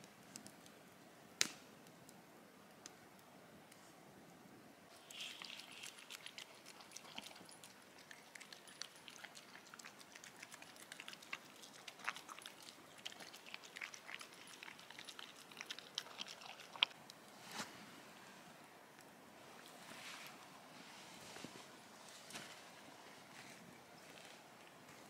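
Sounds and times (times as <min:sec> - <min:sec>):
dog chewing wet food: 0:05.1 - 0:17.0.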